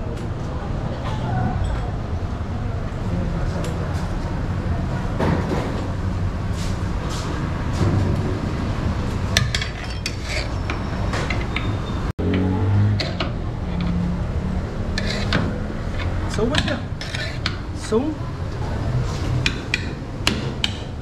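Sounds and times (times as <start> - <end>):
metal utensils clinking on pot: 9.3 - 11.8.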